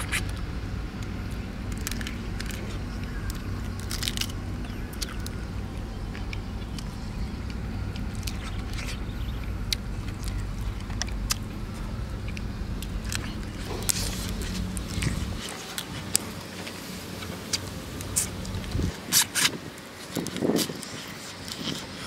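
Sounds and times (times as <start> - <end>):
steady low rumble: 0.0 - 22.0
person crunching crab shell: 1.7 - 11.5.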